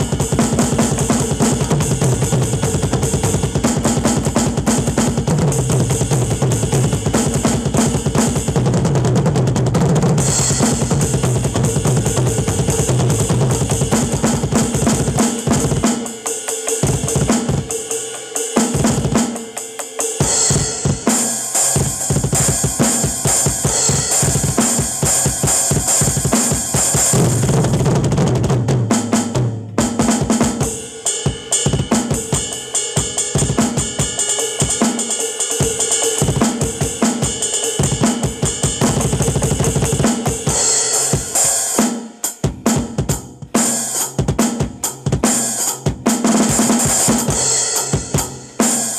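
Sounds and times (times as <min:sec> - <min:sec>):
drum kit solo: 0:00.0 - 0:48.9
ringing cymbals: 0:10.2 - 0:27.4, 0:30.6 - 0:44.2.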